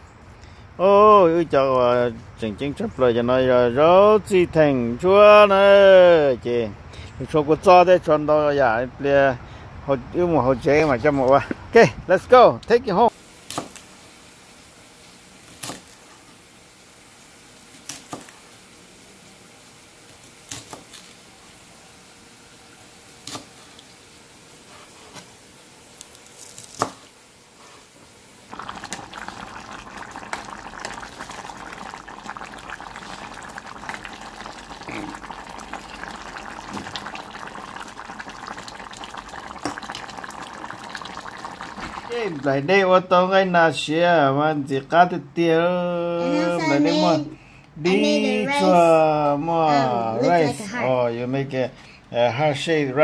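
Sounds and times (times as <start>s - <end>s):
soup bubbling in a pot: 13.1s - 27.2s, 28.1s - 42.7s.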